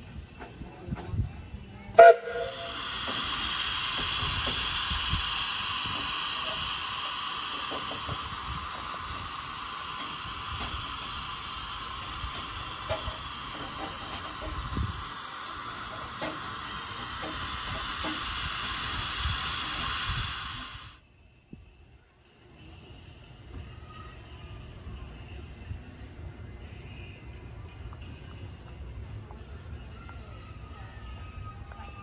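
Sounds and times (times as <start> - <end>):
steam hissing from locomotive: 0.0 - 21.7, 22.4 - 32.0.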